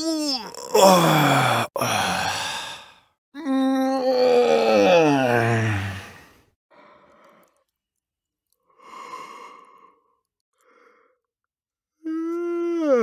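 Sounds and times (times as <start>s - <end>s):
person yawning: 0.0s - 2.8s
soft breathy sighing breaths: 0.8s - 3.2s, 8.7s - 11.3s.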